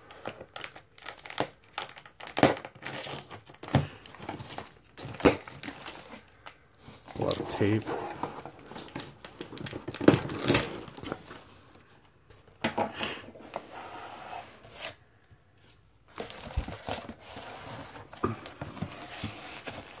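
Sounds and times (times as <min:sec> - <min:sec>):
packing tape tearing: 0:00.1 - 0:06.6, 0:07.2 - 0:11.2
cardboard flaps scraping and rustling: 0:06.8 - 0:11.6, 0:16.1 - 0:20.0.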